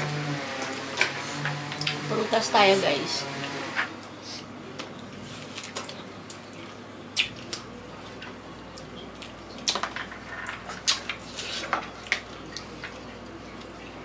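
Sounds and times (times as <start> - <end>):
chewing watermelon: 4.8 - 14.0.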